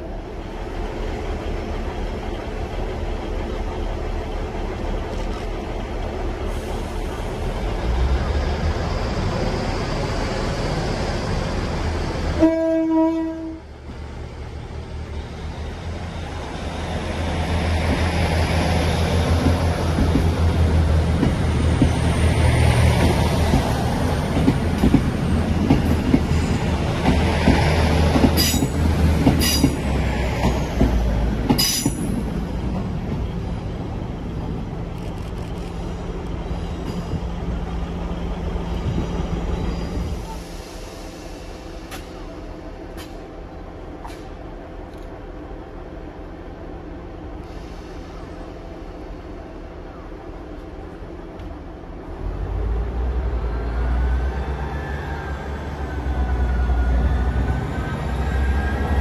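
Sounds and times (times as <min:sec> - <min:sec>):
diesel train engine: 0:00.0 - 0:59.0
train horn: 0:12.4 - 0:13.7
high wheel squeals: 0:39.4 - 0:40.8.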